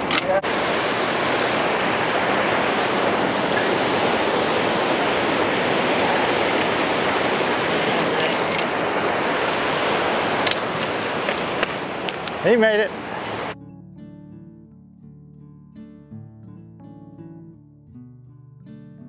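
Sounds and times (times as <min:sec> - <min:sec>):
turbulent white water rushing: 0:00.0 - 0:13.6.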